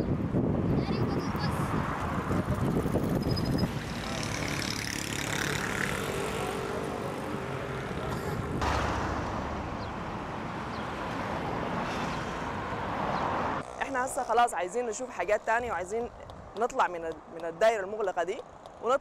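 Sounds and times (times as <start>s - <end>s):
cars driving past: 1.2s - 13.7s.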